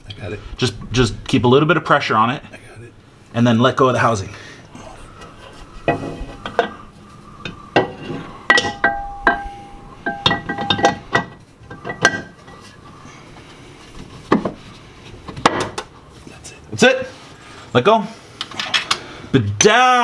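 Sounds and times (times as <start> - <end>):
metallic clinks and knocks: 7.8 - 12.6.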